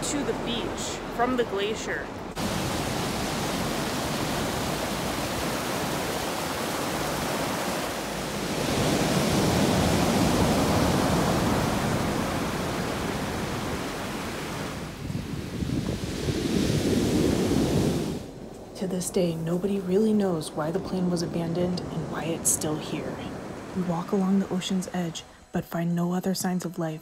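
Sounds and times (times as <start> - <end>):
ocean surf breaking: 0.0 - 25.6
river rushing over stones: 2.3 - 14.9.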